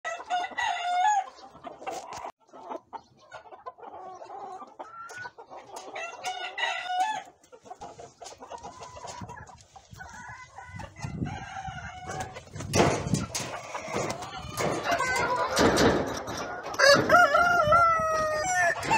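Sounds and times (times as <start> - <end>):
roosters crowing: 0.1 - 2.3, 5.8 - 7.4, 10.0 - 18.9
chickens clucking: 0.1 - 18.9.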